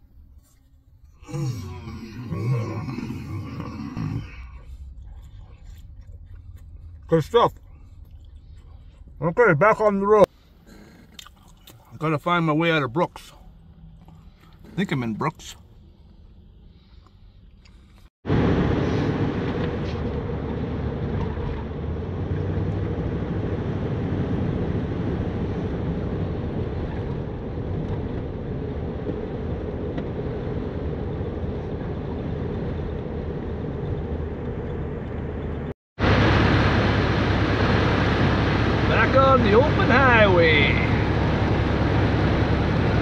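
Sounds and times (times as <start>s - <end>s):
van engine hum: 0.0s - 43.0s
road and wind noise: 12.2s - 43.0s.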